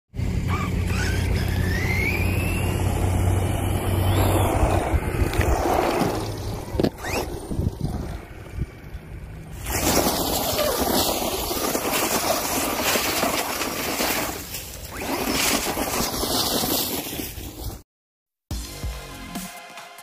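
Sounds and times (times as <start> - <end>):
electric motor whine: 0.2 - 7.5.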